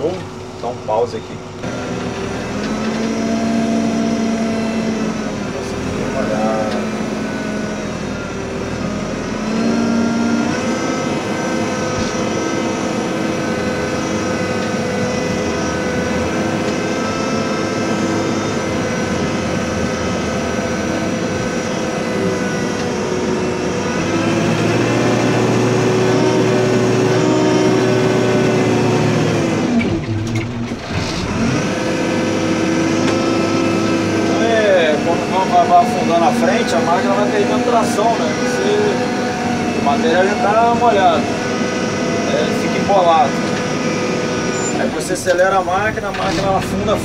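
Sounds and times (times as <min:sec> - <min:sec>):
diesel engine running under load: 0:00.0 - 0:47.0
steady machine whine: 0:00.0 - 0:47.0.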